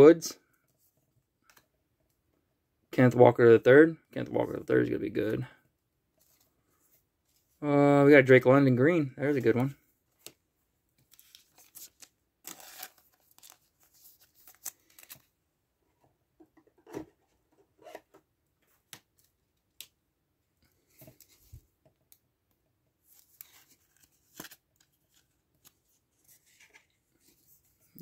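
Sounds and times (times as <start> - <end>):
soft plastic crinkling: 10.1 - 15.4.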